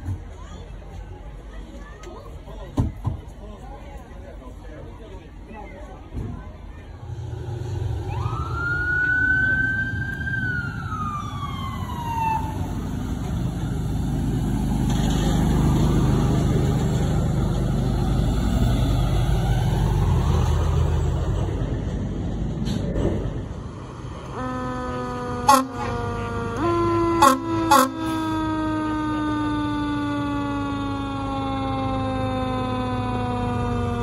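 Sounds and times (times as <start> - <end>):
heavy truck engines rumbling: 0.0 - 34.0
siren falling in pitch: 8.0 - 12.9, 24.3 - 34.0
horn in stepped tones: 24.3 - 28.4.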